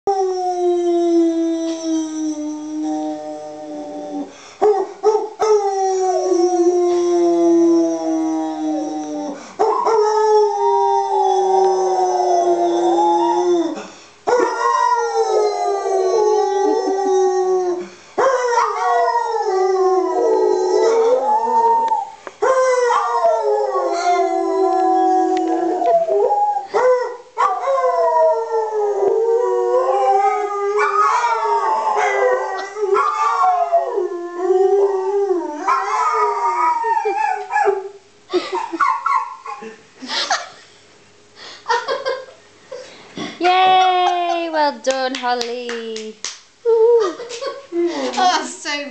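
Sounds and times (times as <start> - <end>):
dog howling: 0.1 - 38.0
man howling: 5.6 - 13.8, 14.4 - 27.2.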